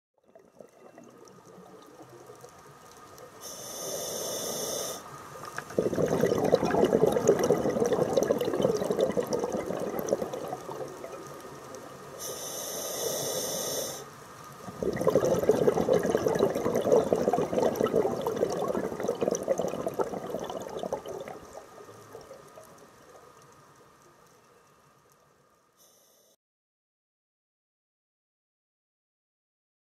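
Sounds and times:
exhaled bubbles rushing: 0.2 - 2.7, 5.6 - 12.2, 14.6 - 22.8
regulator hissing inhale: 3.4 - 5.3, 12.2 - 14.2, 25.8 - 26.4.

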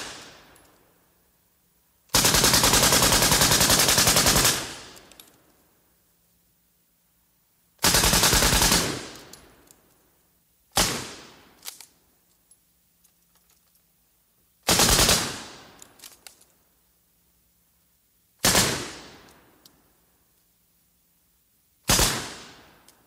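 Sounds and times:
machine gun bursts: 2.1 - 5.0, 7.8 - 9.3.

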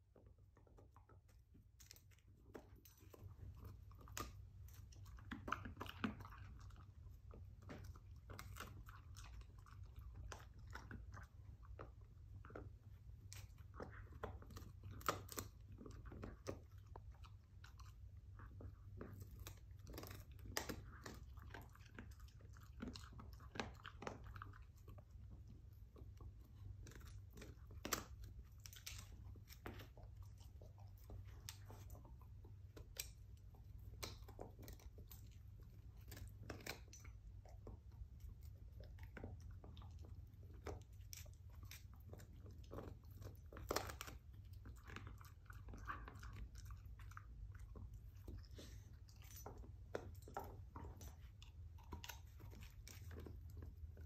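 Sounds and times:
dog gnawing on chew bone: 0.0 - 54.0.

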